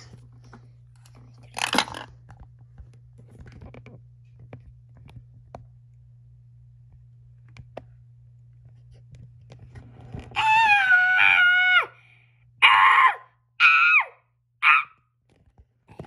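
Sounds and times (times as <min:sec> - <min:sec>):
low hum: 0:00.0 - 0:13.6
plastic toys clattering: 0:01.0 - 0:02.2
plastic toys clicking and knocking: 0:01.4 - 0:02.1.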